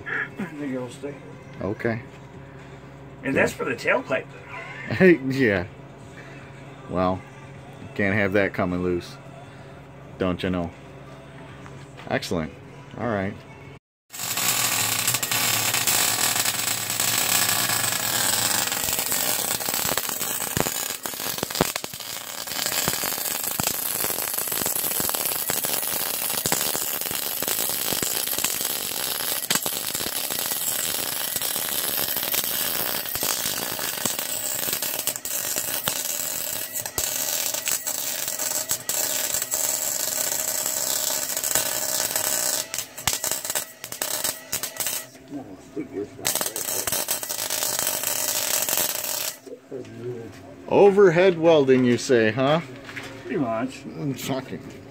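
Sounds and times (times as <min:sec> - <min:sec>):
welder arc crackling: 0:14.1 - 0:45.2, 0:46.2 - 0:49.5.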